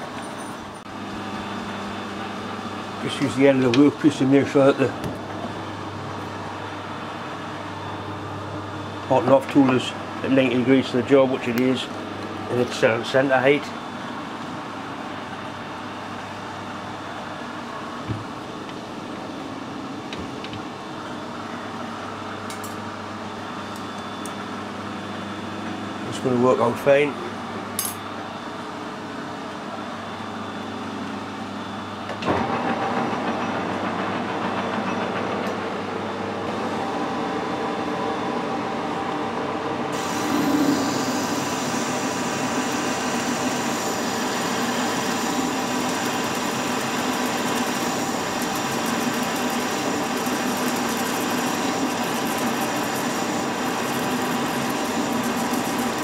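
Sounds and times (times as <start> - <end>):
metal lathe running: 39.9 - 56.0.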